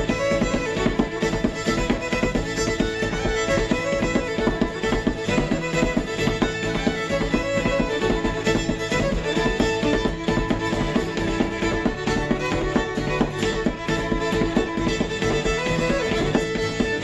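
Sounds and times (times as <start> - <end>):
fiddle playing fast tune: 0.0 - 17.0.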